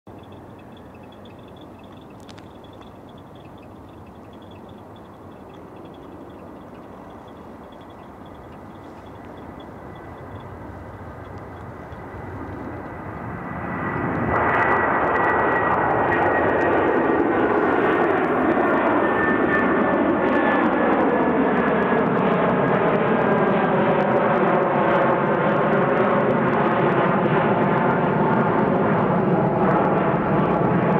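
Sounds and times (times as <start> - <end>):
jet engines at takeoff thrust: 0.1 - 30.9.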